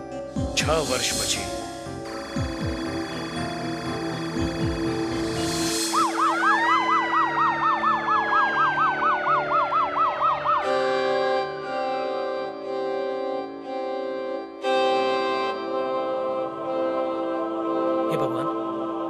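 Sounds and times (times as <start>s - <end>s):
background music chords: 0.0s - 19.0s
emergency siren yelping: 2.1s - 11.8s.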